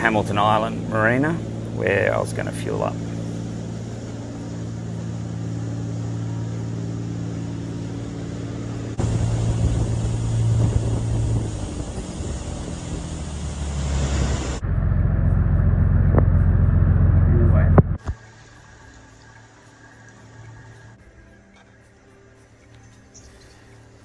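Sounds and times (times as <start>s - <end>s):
water rushing past hull: 0.0s - 14.6s
boat engines running: 0.0s - 24.0s.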